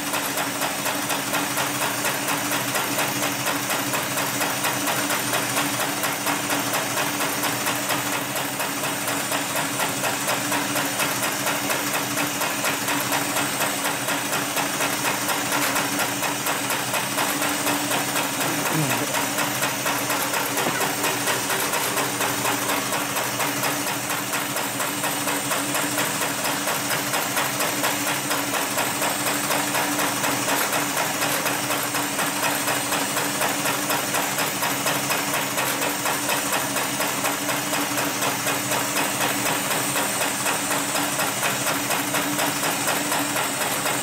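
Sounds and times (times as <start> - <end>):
motor hum: 17.6 - 24.0.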